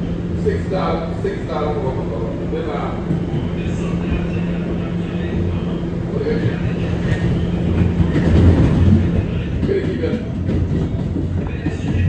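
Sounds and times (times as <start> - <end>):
subway car hum and rumble: 0.0 - 12.0
wheels clacking over rail joints: 6.4 - 12.0.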